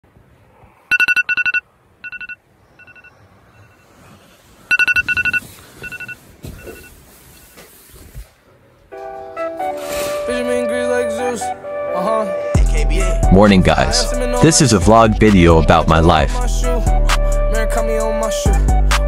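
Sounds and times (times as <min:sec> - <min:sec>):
electronic alarm beeping: 0:00.9 - 0:03.9, 0:04.7 - 0:07.0.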